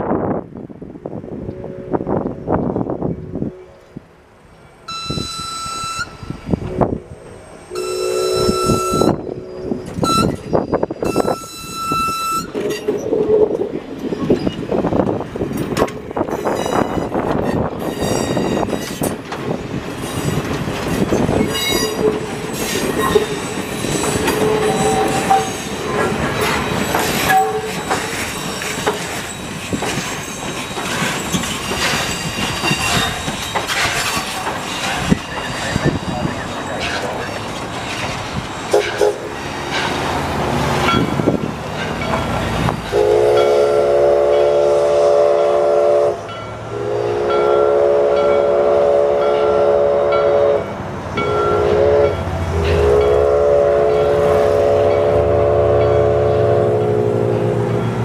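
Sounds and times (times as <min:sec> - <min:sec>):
steam locomotive whistle: 0:04.9 - 0:12.6, 0:22.8 - 0:26.2, 0:27.0 - 0:28.0, 0:38.7 - 0:39.3, 0:42.9 - 0:57.8
wheels squealing: 0:04.9 - 0:14.7, 0:16.2 - 0:19.2, 0:19.9 - 0:42.7
train wheel clatter: 0:07.9 - 0:45.3, 0:51.1 - 0:55.2.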